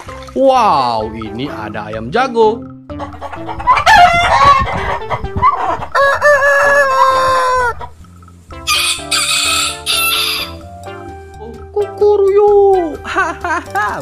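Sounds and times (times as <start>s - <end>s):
rooster crowing: 3.6s - 7.9s, 8.7s - 10.6s
rough hissy rooster call: 6.4s - 7.8s, 8.7s - 10.6s.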